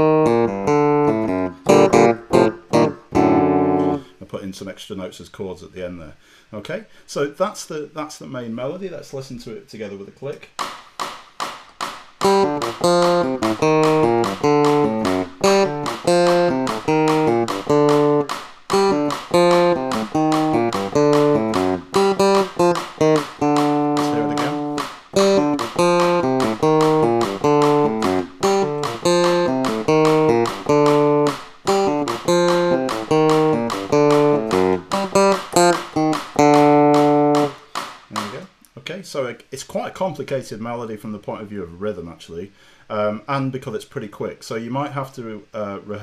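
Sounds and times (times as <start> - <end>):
electronic keyboard melody: 0.0 - 4.0, 12.2 - 37.6
metronome click: 0.0 - 4.0, 12.2 - 38.3.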